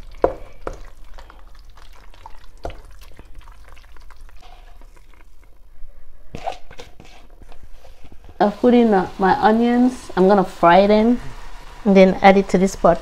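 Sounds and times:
spoon stirring thick stew: 0:00.0 - 0:05.6.

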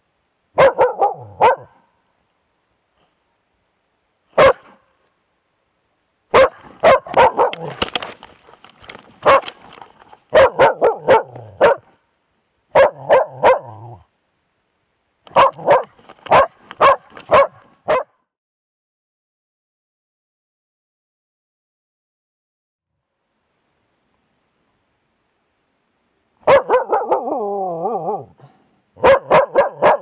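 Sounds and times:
dog barking: 0:00.6 - 0:01.9, 0:04.4 - 0:04.9, 0:06.3 - 0:07.8, 0:09.2 - 0:09.6, 0:10.3 - 0:12.0, 0:12.7 - 0:14.1, 0:15.3 - 0:18.2, 0:26.4 - 0:28.4, 0:29.0 - 0:30.0.

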